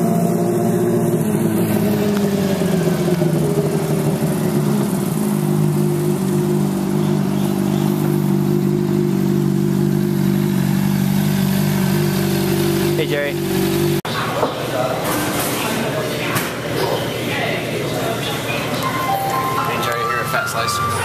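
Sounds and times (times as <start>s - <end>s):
motorcycle engine at low revs: 0.0s - 14.1s.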